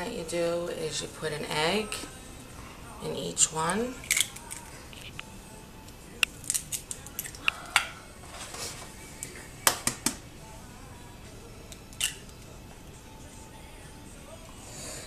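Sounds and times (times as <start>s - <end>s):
eggshells cracking: 4.0s - 4.7s, 6.2s - 7.9s.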